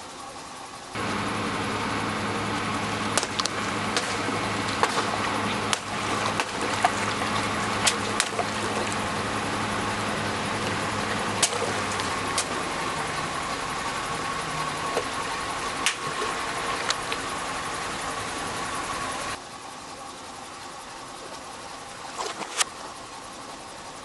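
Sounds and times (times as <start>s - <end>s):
car engine idling: 0.0s - 24.0s
water splashing: 1.0s - 19.4s, 22.0s - 22.9s
water balloons bursting: 2.7s - 18.8s.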